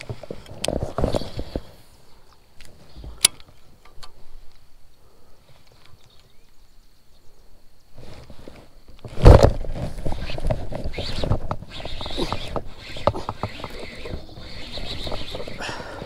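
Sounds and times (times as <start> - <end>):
fishing reel clicks and rustling: 8.1 - 16.0.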